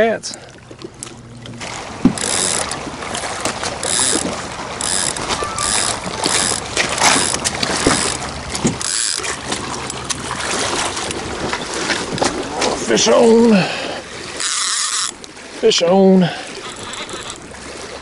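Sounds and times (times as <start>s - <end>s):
fishing reel clicker ratcheting: 2.2s - 2.8s, 3.8s - 8.2s, 8.8s - 9.4s, 14.4s - 15.3s, 16.5s - 17.4s.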